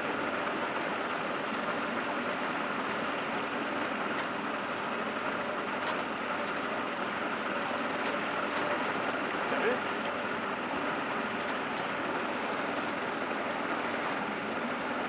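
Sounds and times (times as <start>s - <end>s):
outboard motor running: 0.0s - 15.0s
water streaming along hull: 0.0s - 15.0s.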